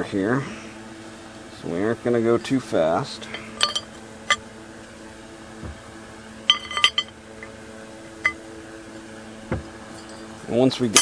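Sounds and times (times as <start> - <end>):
steady low hum: 0.0 - 11.0
metal parts clinking: 3.2 - 4.4, 6.5 - 7.1, 9.9 - 10.3
soft thuds: 5.6 - 5.9, 9.4 - 9.8.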